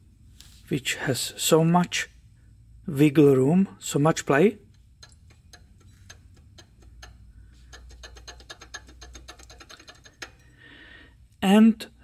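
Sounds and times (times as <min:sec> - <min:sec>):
pulley bearing ticking: 0:04.3 - 0:10.6.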